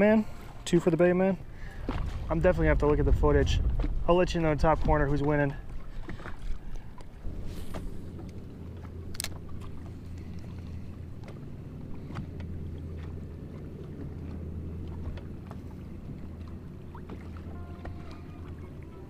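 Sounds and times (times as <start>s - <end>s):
electric trolling motor humming: 6.9s - 19.0s.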